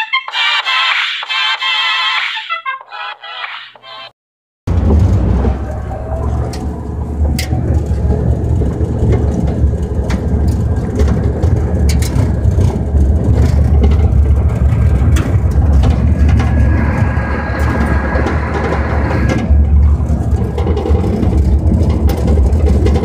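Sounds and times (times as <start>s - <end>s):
truck engine and road drone: 4.7s - 23.0s
wind buffeting microphone: 4.7s - 23.0s
sharp knocks and rattles: 6.5s - 17.2s, 18.4s - 23.0s.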